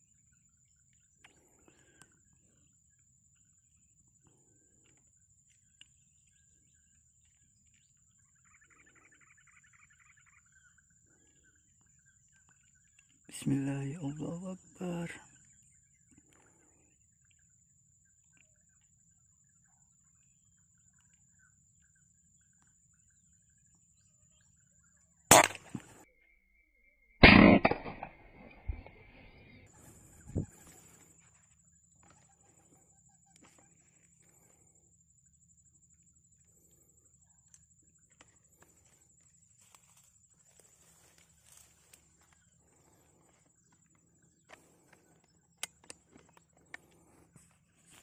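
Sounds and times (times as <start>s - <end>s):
faint bird calls: 0.0s - 26.2s
air rifle shot: 25.3s - 26.0s, 27.2s - 28.2s.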